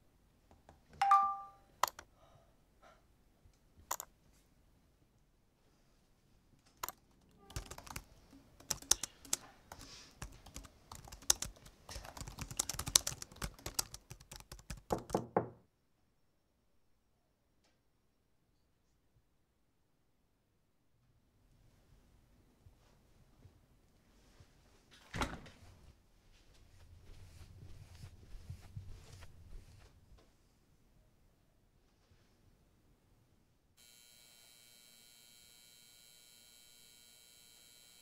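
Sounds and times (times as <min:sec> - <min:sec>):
two-tone electronic chime: 0:01.0 - 0:01.6
computer keyboard typing: 0:01.8 - 0:02.1, 0:06.8 - 0:15.2.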